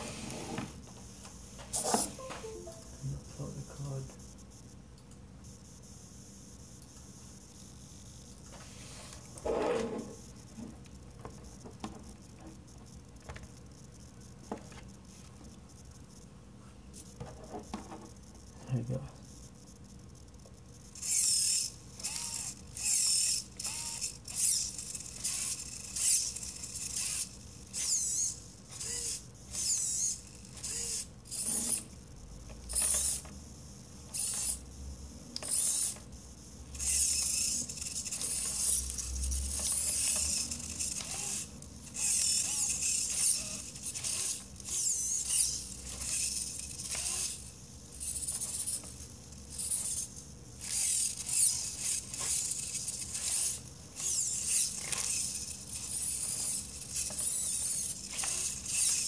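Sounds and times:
servo motors whirring: 20.8 - 59.0.

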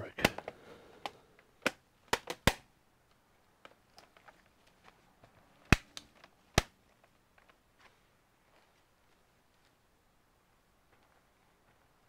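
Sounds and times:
plastic clips snapping shut: 0.2 - 2.7.

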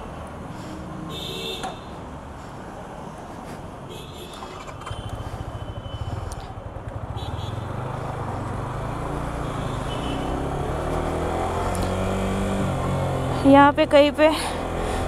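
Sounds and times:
motorcycle engine accelerating: 4.4 - 15.0.

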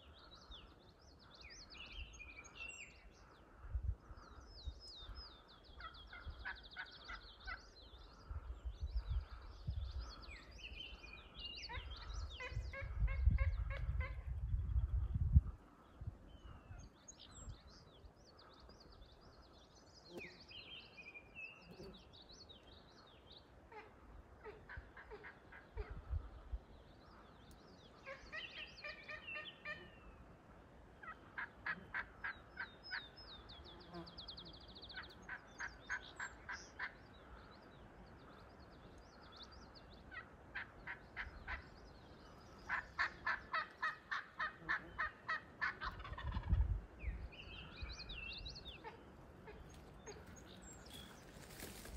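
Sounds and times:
songbirds chirping: 0.0 - 51.9
turkey yelping: 42.7 - 46.5.

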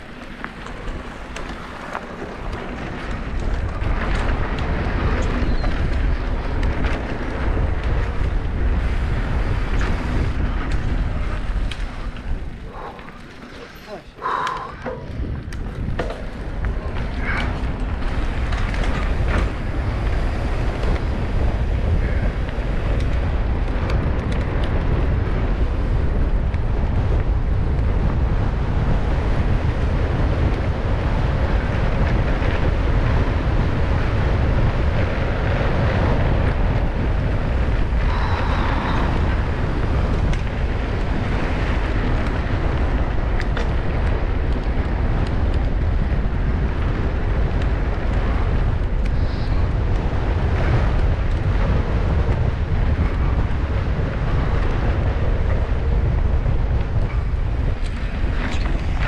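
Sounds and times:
bike clicks and rattles: 0.0 - 59.0
tyres on dirt trail: 0.0 - 59.0
wind buffeting microphone: 0.0 - 59.0.

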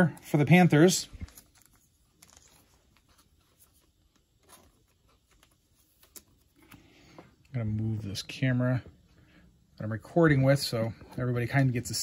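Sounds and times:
trading cards clicking and rustling: 0.2 - 7.3.

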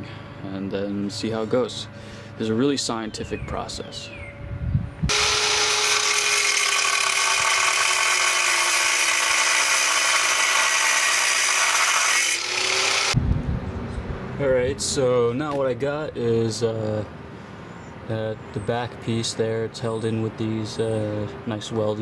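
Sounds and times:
angle grinder cutting steel: 5.1 - 13.2.

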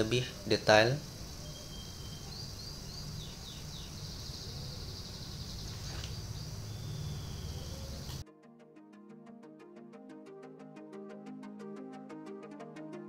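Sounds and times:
high insect-like hiss: 0.0 - 8.2
short falling bird chirps: 0.0 - 8.2.

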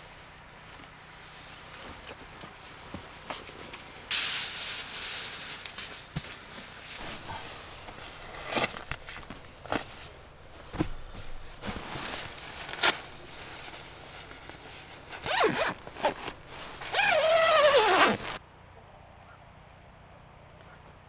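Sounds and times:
nylon sleeping bag rustling: 1.1 - 18.4
zipper being pulled: 15.1 - 18.4.

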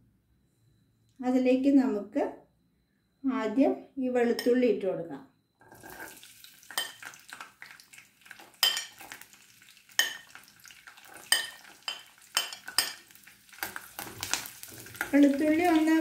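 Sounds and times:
metal spoon clinking and scraping: 5.6 - 7.2, 8.4 - 9.2, 10.0 - 10.4, 11.0 - 15.8
garlic sizzling in oil: 5.6 - 16.0.

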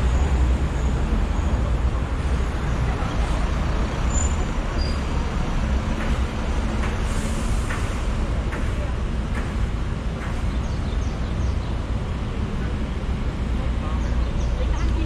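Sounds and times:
bus engine rumbling: 0.0 - 15.0
city road traffic: 0.0 - 15.0.

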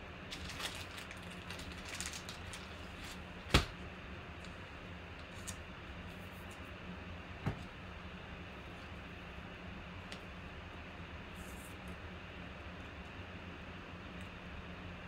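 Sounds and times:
steady low hum: 0.0 - 15.0
plastic sleeve rustling: 0.3 - 3.7.

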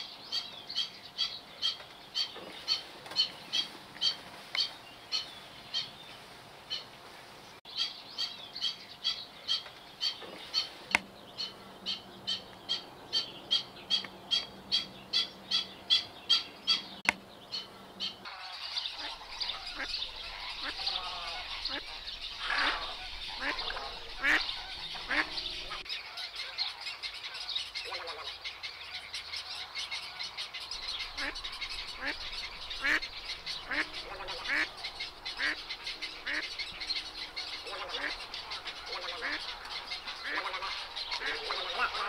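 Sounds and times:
bird short sharp calls: 17.6 - 28.5, 30.7 - 42.0.

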